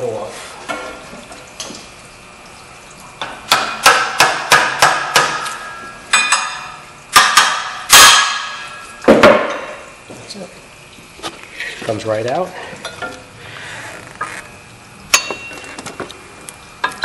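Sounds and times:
hammer striking metal wrench: 3.5 - 8.8.

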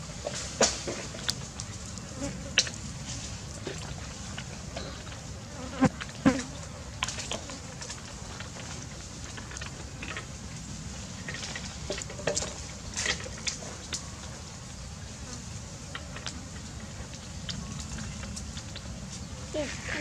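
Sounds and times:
insects humming: 0.3 - 20.0
light clicks and crackles: 6.0 - 14.1, 15.9 - 19.3.

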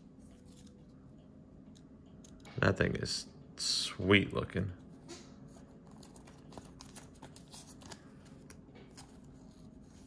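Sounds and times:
plastic card sleeve rustling: 5.5 - 10.0.

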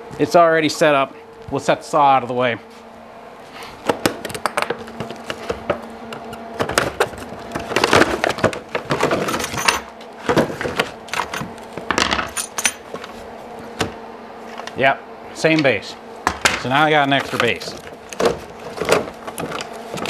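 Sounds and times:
plastic packaging crinkling: 17.1 - 20.0.

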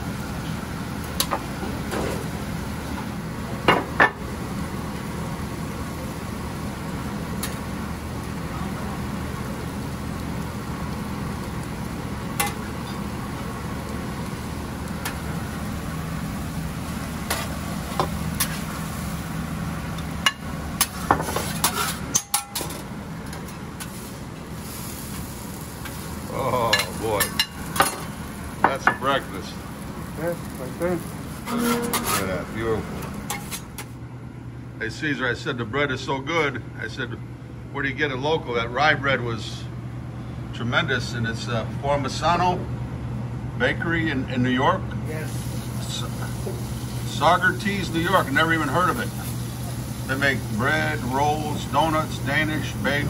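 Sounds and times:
food sizzling on griddle: 0.0 - 33.9, 45.0 - 53.0
metal spatula scraping griddle: 20.8 - 22.7, 31.5 - 32.4.

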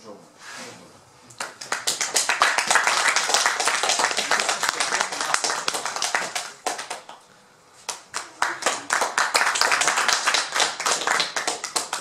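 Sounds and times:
audience applauding: 1.4 - 7.2, 7.9 - 12.0.

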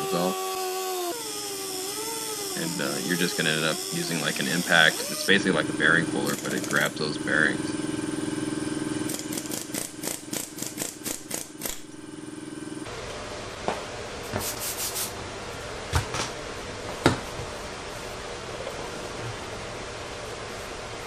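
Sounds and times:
impact tool whining and clicking: 0.0 - 5.3, 6.2 - 6.9.

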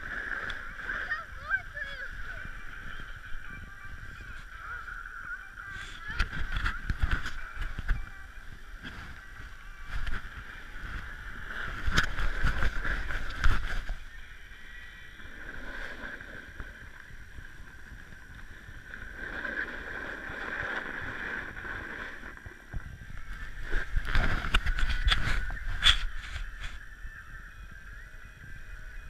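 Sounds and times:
wind on microphone: 0.0 - 29.0
snowboard scraping over snow: 5.6 - 14.2, 14.8 - 26.8.

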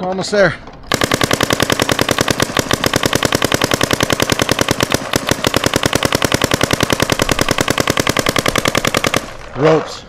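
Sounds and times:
paintball marker rapid fire: 0.9 - 9.8.

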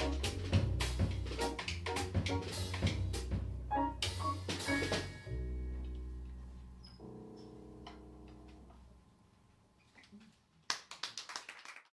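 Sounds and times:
drum and cymbal hits: 0.0 - 5.3.

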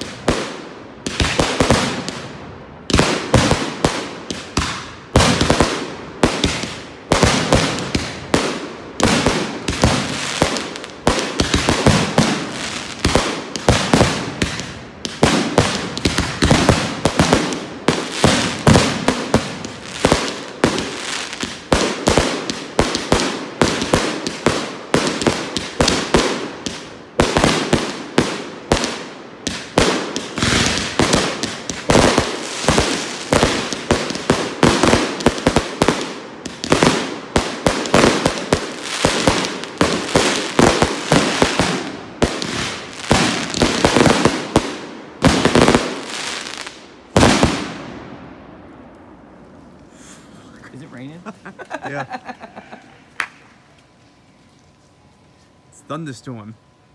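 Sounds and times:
firework bangs: 0.0 - 48.2
firework crackle: 2.8 - 47.8.

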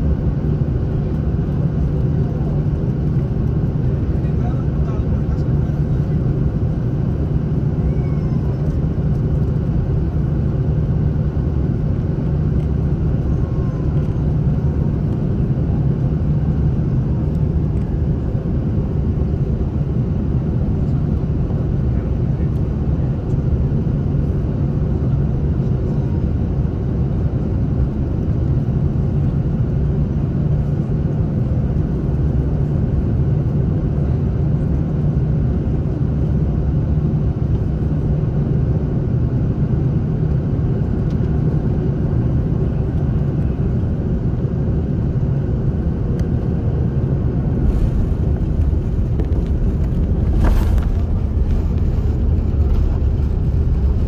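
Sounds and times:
aircraft cabin engine rumble: 0.0 - 54.0
wheels rumbling on runway: 0.0 - 54.0.

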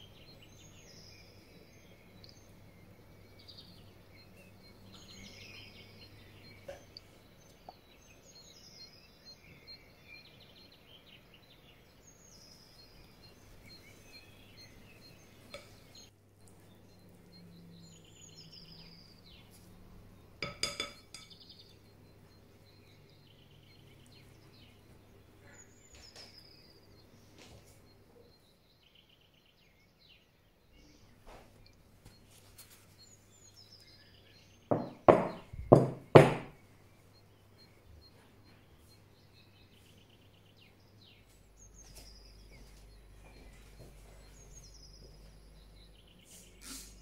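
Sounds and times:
faint birdsong: 0.0 - 47.0
metal utensil clinking glass bowl: 20.4 - 21.4.

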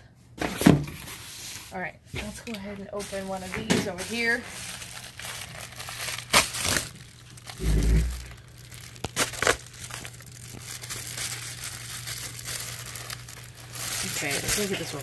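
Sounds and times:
plastic rustling: 0.5 - 15.0
plastic mailer tearing: 3.0 - 15.0.

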